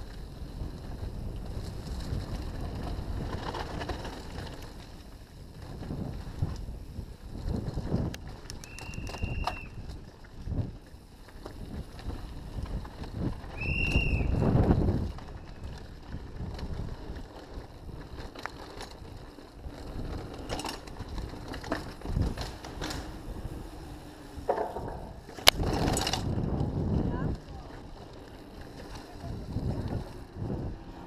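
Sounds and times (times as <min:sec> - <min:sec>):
bike tyres rumbling: 0:00.0 - 0:31.0.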